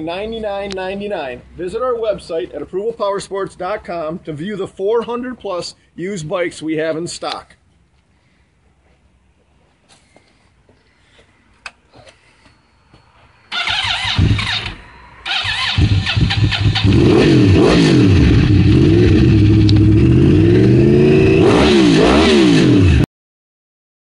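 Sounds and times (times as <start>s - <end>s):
motorcycle engine revving: 13.5s - 23.1s.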